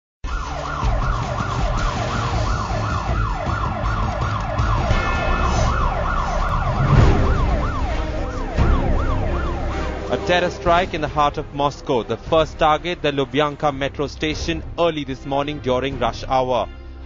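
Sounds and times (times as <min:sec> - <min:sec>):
siren yelping: 0:00.2 - 0:11.0
low rumble: 0:01.9 - 0:14.8.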